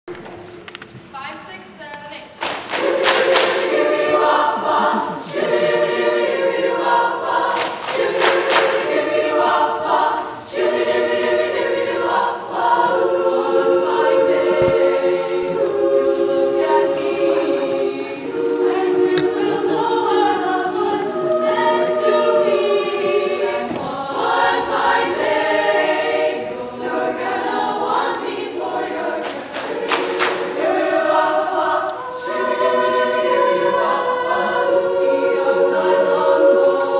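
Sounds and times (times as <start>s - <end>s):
people talking: 1.1s - 2.4s, 4.4s - 5.6s, 19.2s - 20.7s
girls' choir singing in harmony: 2.2s - 36.9s.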